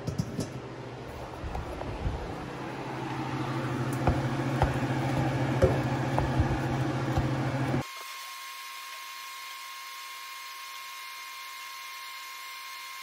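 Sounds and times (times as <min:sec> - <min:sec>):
steady low hum: 0:00.0 - 0:07.8.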